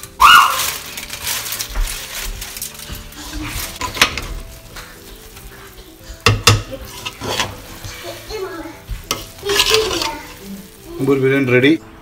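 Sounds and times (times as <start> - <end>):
aluminium foil crinkling: 0.0 - 11.8
spoon stirring rice in a pot: 1.8 - 11.4.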